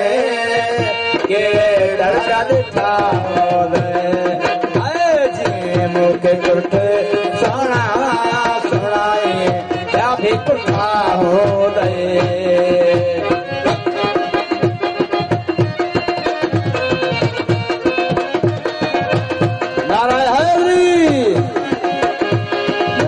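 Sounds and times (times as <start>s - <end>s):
person singing: 0.0s - 14.2s
harmonium melody: 0.0s - 23.0s
hand drum beat: 0.7s - 23.0s.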